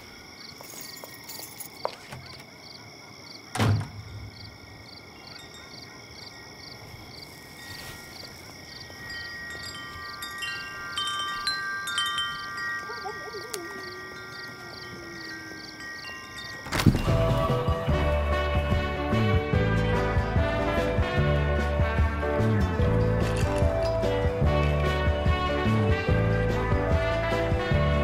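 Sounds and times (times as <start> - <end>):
night insects chirping: 0.0 - 28.0
chime-like ringing tones: 4.6 - 17.7.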